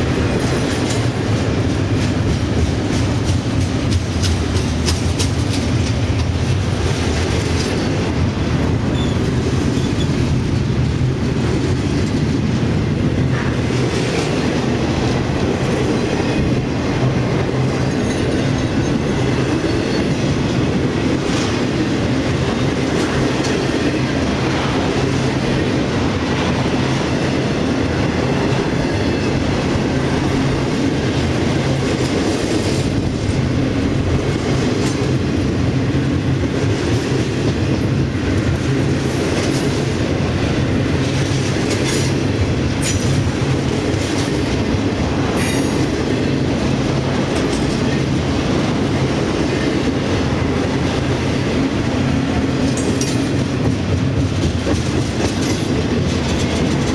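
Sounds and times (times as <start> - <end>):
train wheels rumbling on rail: 0.0 - 56.9
wheels clicking over rail joints: 0.0 - 56.9
high-pitched wheel squeals: 8.9 - 10.1.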